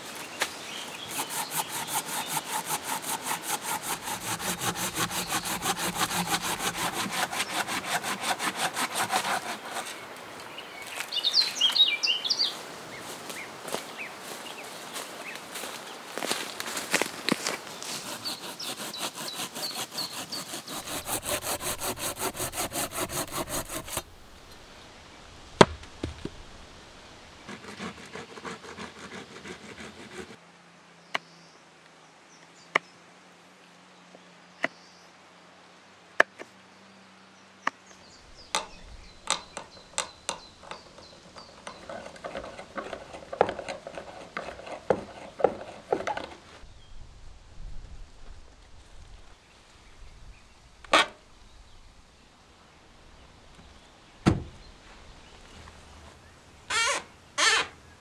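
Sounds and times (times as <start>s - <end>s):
hand saw cutting log: 0.8s - 10.0s, 17.4s - 24.6s, 27.5s - 30.4s, 38.5s - 46.5s, 56.7s - 57.7s.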